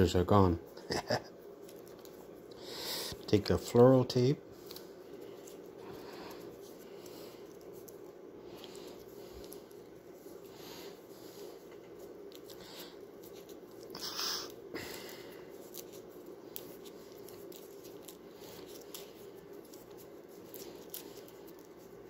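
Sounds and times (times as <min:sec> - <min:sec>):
steady low hum: 0:00.0 - 0:22.0
floral tape crinkling: 0:01.4 - 0:22.0.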